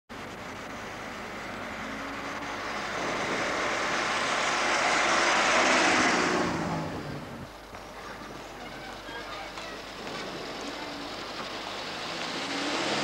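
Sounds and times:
car driving past: 0:00.6 - 0:07.5, 0:09.9 - 0:13.0.

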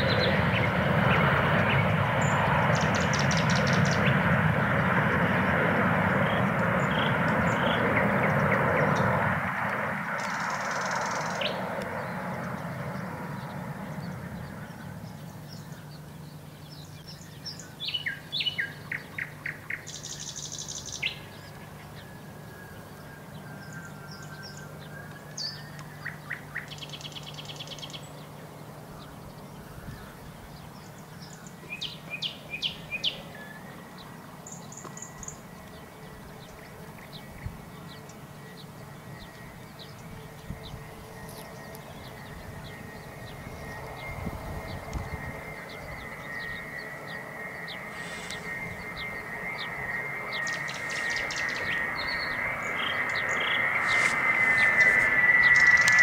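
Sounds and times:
jet aircraft noise: 0:00.0 - 0:56.0
nightingale singing: 0:15.2 - 0:28.2, 0:30.6 - 0:56.0.

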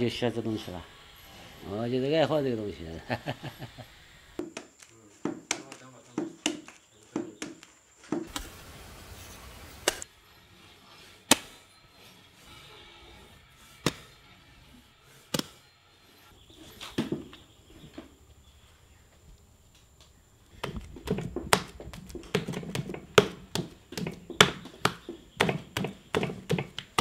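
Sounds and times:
clay slapped on wooden board: 0:04.4 - 0:08.4, 0:11.3 - 0:11.5, 0:20.6 - 0:27.0.

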